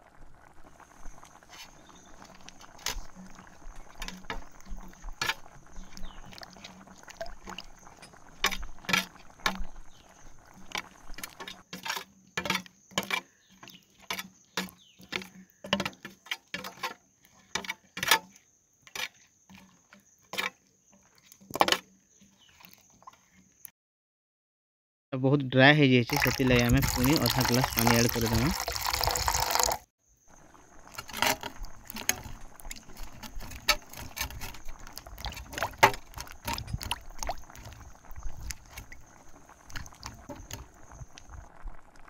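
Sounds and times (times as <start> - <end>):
faint gravy sizzling: 0.0 - 23.5, 26.1 - 42.0
wooden spatula scraping a pan: 1.1 - 23.5, 30.9 - 37.0.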